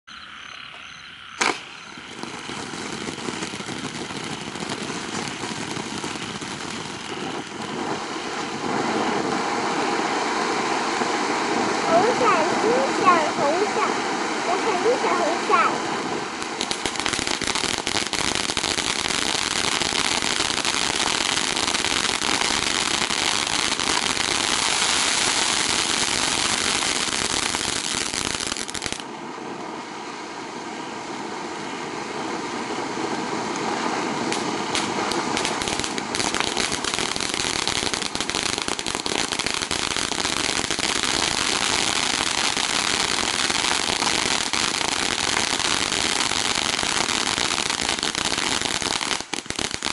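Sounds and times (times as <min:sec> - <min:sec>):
firework fountain hissing and crackling: 0:00.1 - 0:49.9.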